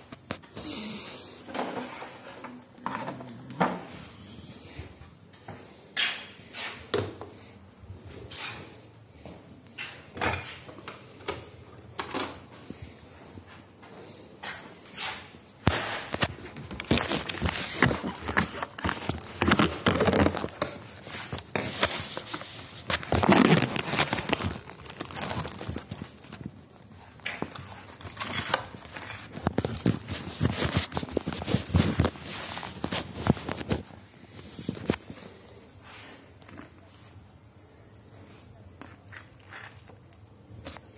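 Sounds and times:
rustling: 0:16.3 - 0:36.8.

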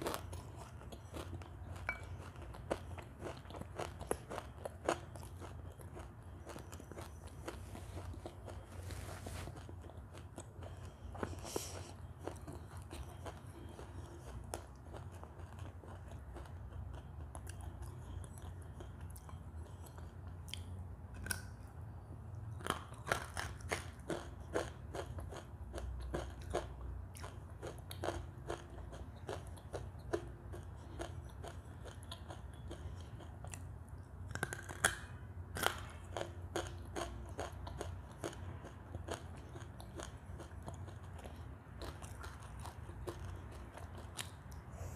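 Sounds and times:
chewing crunchy clay: 0:22.5 - 0:44.9.

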